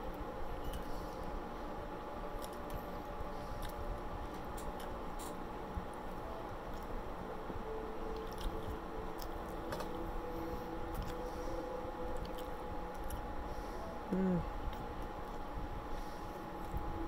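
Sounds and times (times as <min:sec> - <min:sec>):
person chewing soft food: 0:02.2 - 0:07.0, 0:08.0 - 0:09.6, 0:10.7 - 0:13.7.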